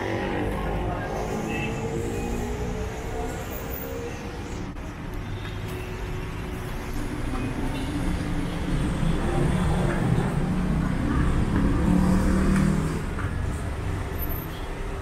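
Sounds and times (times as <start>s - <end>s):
road traffic passing: 0.0s - 15.0s.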